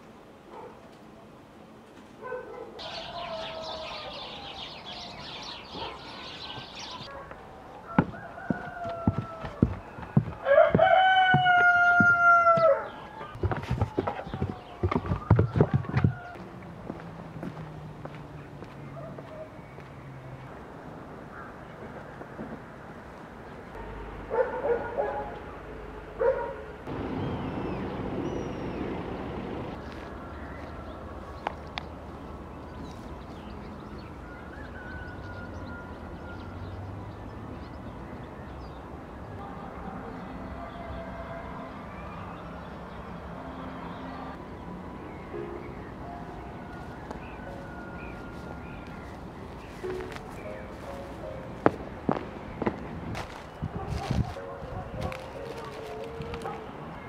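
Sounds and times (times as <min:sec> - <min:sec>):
rooster crowing: 0:02.8 - 0:05.4, 0:07.5 - 0:14.8, 0:15.7 - 0:16.4, 0:34.2 - 0:36.5, 0:46.6 - 0:48.8
small birds chattering: 0:02.8 - 0:07.2
chickens calling: 0:02.8 - 0:16.5.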